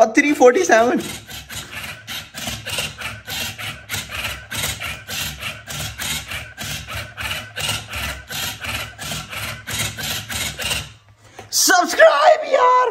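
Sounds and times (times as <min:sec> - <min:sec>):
robot motors clacking cube layers: 0:00.8 - 0:11.0.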